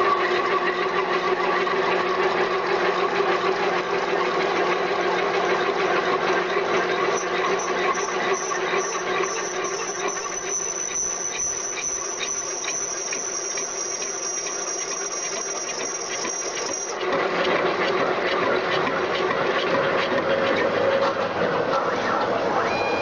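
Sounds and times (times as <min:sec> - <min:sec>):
lathe running and cutting: 0:00.0 - 0:22.8
high-pitched machine whine: 0:04.7 - 0:17.0, 0:22.0 - 0:23.0.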